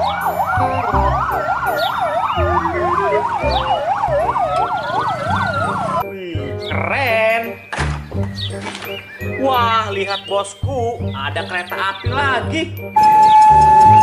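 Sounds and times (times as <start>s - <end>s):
fire engine sirens: 0.0s - 6.1s, 13.0s - 14.0s.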